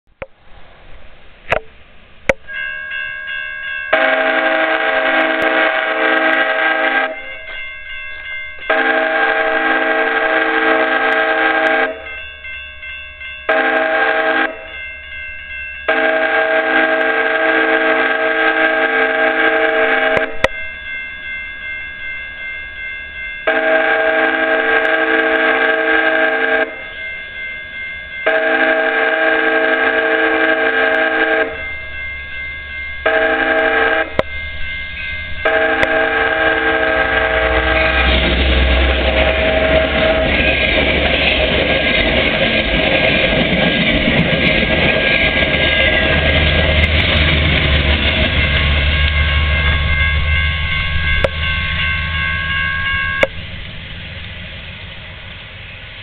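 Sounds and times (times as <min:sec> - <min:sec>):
train horn blasts: 0:03.9 - 0:07.5, 0:08.6 - 0:12.2, 0:13.5 - 0:14.7, 0:15.9 - 0:20.5, 0:23.5 - 0:26.9, 0:28.2 - 0:31.8, 0:33.0 - 0:34.4, 0:35.4 - 0:40.6.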